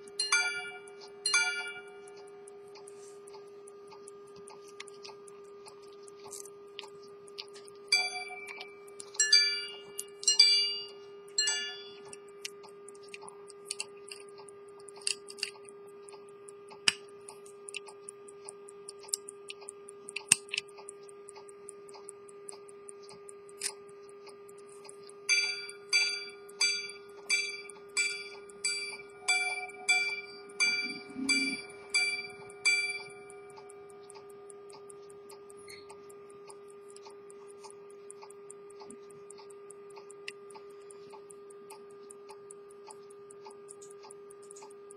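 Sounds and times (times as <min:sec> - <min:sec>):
repeater ringing strikes: 0:00.0 - 0:02.4, 0:07.9 - 0:12.1, 0:25.3 - 0:34.0
pocket watch ticking: 0:00.0 - 0:44.9
sharp watch clicks: 0:00.0 - 0:44.9.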